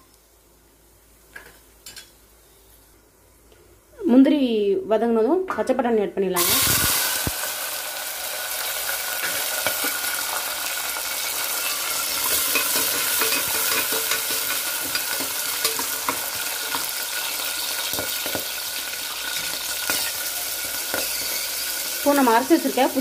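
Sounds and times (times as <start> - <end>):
food sizzling in oil: 6.4 - 23.0
metal ladle scraping pot: 11.6 - 16.9.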